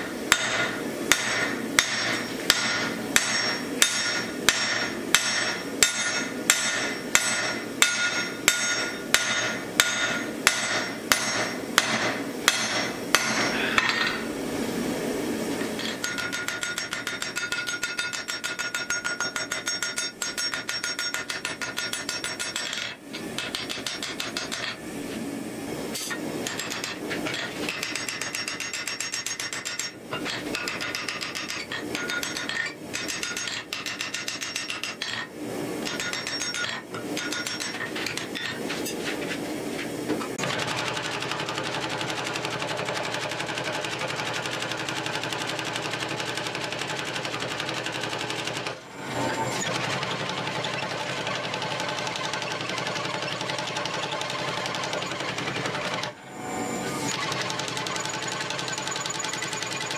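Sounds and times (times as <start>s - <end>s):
hammer on punch: 0.3s - 14.1s
anvil ringing: 0.3s - 14.3s, 15.8s - 22.8s
hammer striking steel on anvil: 0.3s - 14.3s, 15.7s - 24.8s, 25.9s - 39.0s.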